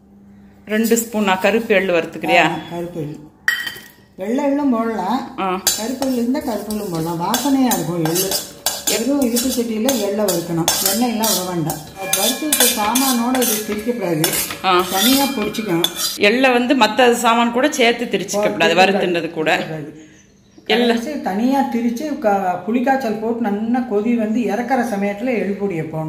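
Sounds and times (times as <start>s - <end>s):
metal spatula scraping seeds: 5.6s - 16.2s.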